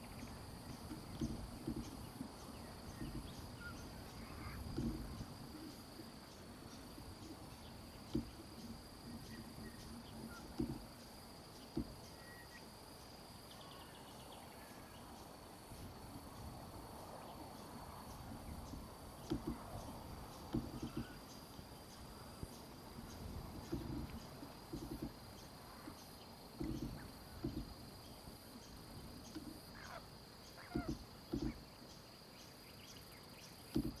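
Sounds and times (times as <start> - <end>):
dull low bumps: 0.0 - 12.2, 15.7 - 21.3, 22.0 - 29.8, 30.7 - 31.8
insect trill: 0.0 - 34.0.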